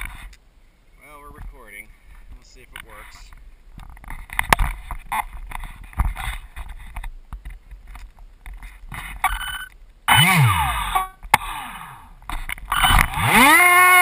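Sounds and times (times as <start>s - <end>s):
camera rubbing against fleece: 0.0s - 0.3s, 3.9s - 9.6s
electric motor and propeller whirring: 10.1s - 11.2s, 12.7s - 14.0s.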